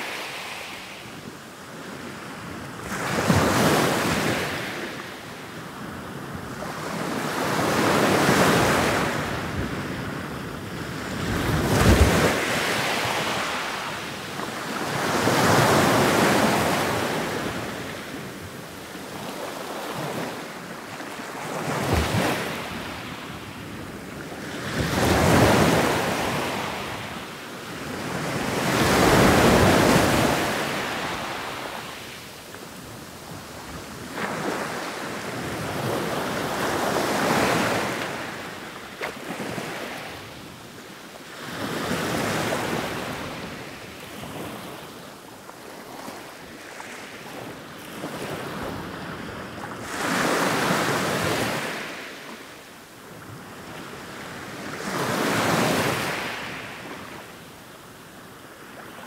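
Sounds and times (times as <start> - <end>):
ocean waves breaking: 21.1 - 23.2, 27.8 - 32.2.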